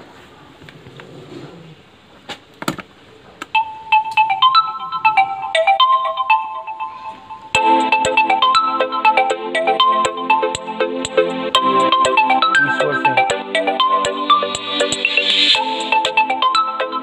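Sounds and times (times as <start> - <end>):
accompaniment with a beat: 3.5 - 17.0
electronic ringtone tune: 3.5 - 17.0.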